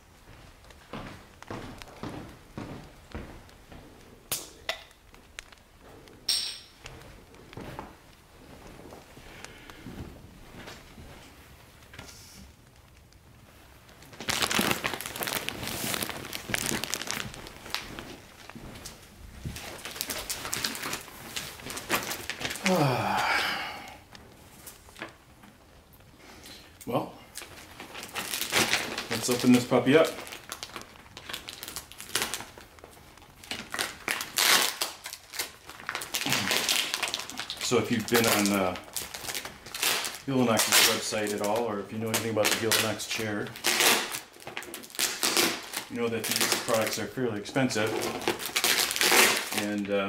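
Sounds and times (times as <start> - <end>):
plastic packaging crinkling: 12.6 - 50.0
blade cutting plastic bag: 47.6 - 49.8.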